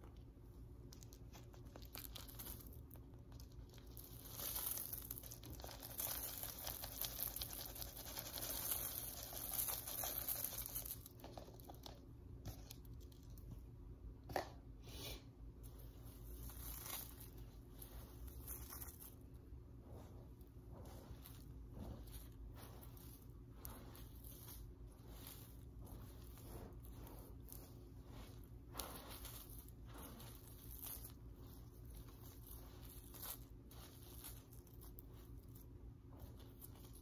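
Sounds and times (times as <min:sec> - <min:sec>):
soft tearing and rustling: 0:00.8 - 0:13.7, 0:15.6 - 0:37.0.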